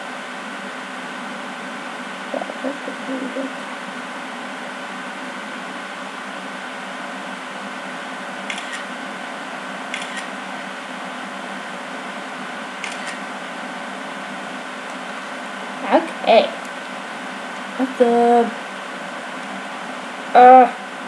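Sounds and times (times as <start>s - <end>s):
room hum: 0.0s - 21.0s
camera shutter double clicks: 8.5s - 8.9s, 9.9s - 10.3s, 12.8s - 13.2s.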